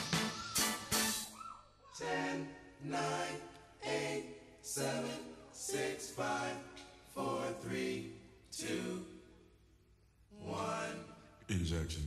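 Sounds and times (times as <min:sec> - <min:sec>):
male vocal group singing chords: 0:02.0 - 0:09.4, 0:10.3 - 0:12.0.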